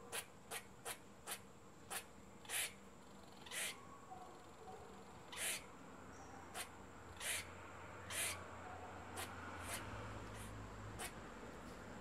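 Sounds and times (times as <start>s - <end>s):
squirrel hissing: 0.0s - 2.8s, 3.4s - 3.8s, 5.3s - 5.7s, 6.5s - 8.4s, 9.1s - 11.2s.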